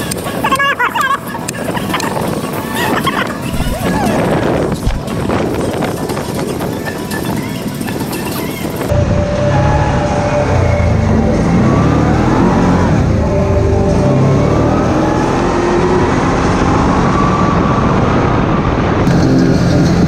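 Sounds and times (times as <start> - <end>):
atv engine running: 19.1 - 20.0.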